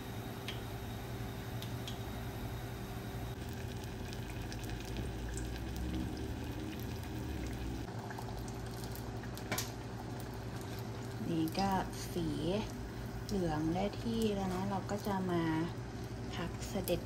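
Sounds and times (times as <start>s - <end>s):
food deep-frying in hot oil: 3.3s - 17.0s.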